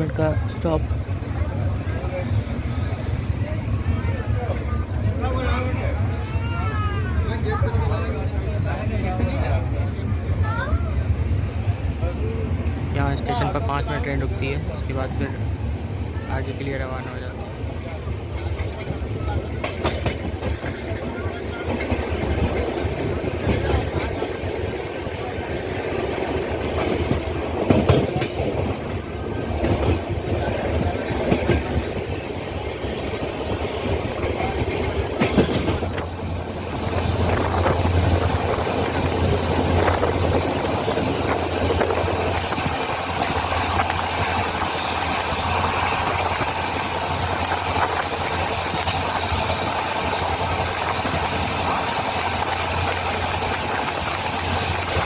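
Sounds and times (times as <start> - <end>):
train rumbling on track: 0.0 - 55.0
train wheels clattering over joints: 18.3 - 44.8.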